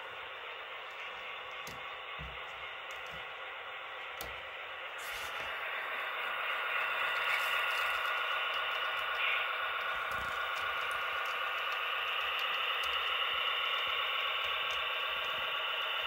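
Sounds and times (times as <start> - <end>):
model locomotive humming: 0.0 - 16.0
faint clicks: 7.1 - 15.4.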